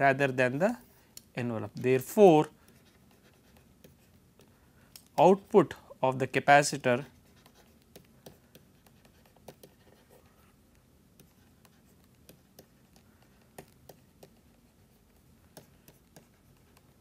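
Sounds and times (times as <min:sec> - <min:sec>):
stylus tapping on tablet screen: 0:07.5 - 0:10.0, 0:11.1 - 0:17.0.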